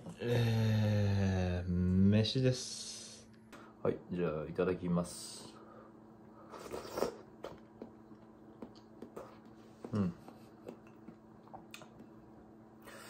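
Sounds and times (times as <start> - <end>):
person humming: 0.0 - 1.9, 9.8 - 10.5
faint steady hum: 0.0 - 13.0
person chewing: 6.6 - 12.2.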